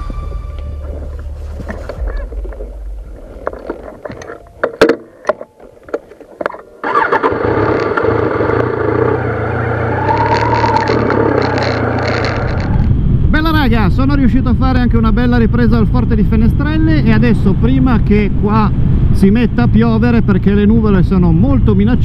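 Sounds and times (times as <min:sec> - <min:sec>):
motorcycle engine running: 0:06.8 - 0:13.3.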